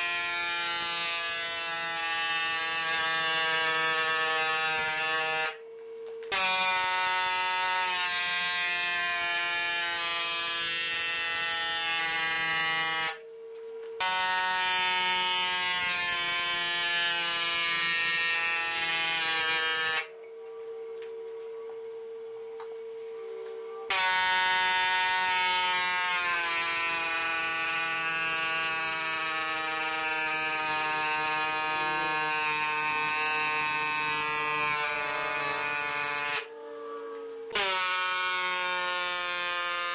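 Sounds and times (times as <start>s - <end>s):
pneumatic air hammer buzzing: 0.0s - 5.6s, 6.2s - 13.2s, 14.0s - 20.1s, 23.9s - 36.5s, 37.5s - 39.9s
steady hum: 1.6s - 25.4s.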